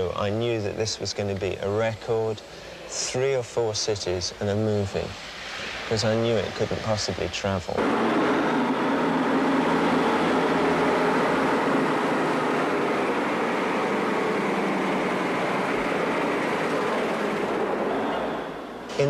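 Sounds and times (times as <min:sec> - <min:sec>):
diesel lorry engine passing: 0:07.8 - 0:19.0.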